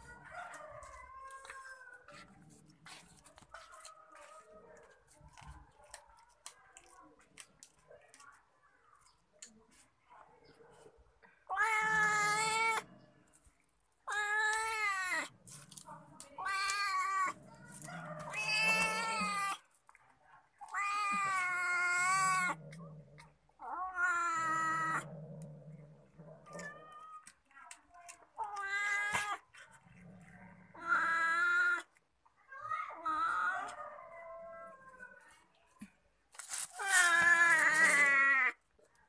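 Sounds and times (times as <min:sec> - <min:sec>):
cat growling low: 0:11.4 - 0:13.4, 0:14.1 - 0:19.6, 0:20.6 - 0:27.4, 0:28.4 - 0:32.0, 0:36.7 - 0:38.6
cat yowling: 0:11.5 - 0:12.8, 0:16.4 - 0:19.6, 0:20.6 - 0:22.6, 0:23.6 - 0:25.1
chewing clicks: 0:26.4 - 0:30.4.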